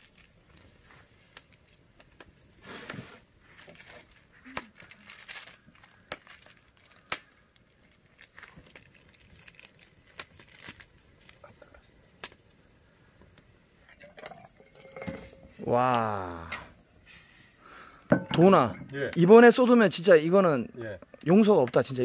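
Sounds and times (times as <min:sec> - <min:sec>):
plastic packets crinkling and tearing: 0:00.0 - 0:12.6.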